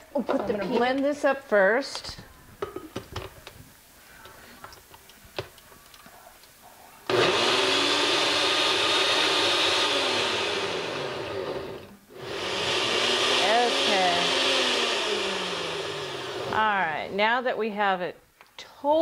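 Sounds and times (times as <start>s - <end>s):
blender motor running: 7.1s - 16.6s.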